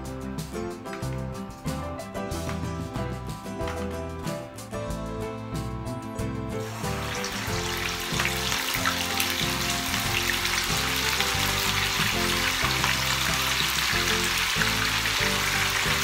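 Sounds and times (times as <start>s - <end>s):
background music: 0.0s - 16.0s
chicken sizzling in hot oil: 6.6s - 16.0s.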